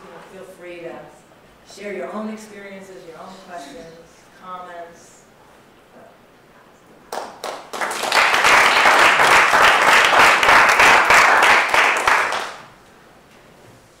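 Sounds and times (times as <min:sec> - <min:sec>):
audience applauding: 0:07.1 - 0:12.7.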